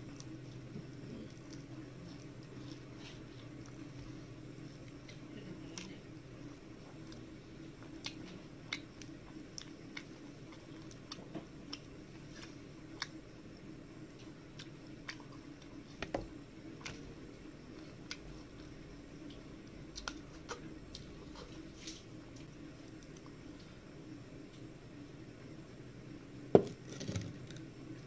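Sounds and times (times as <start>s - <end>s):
wet chewing: 0.0s - 16.0s
steady low hum: 0.0s - 28.0s.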